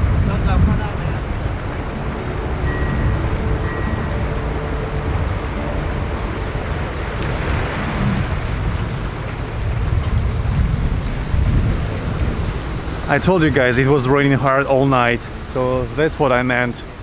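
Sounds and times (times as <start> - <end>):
low engine rumble: 0.0 - 16.2
wind buffeting microphone: 0.0 - 17.0
water sloshing and splashing: 1.1 - 13.0.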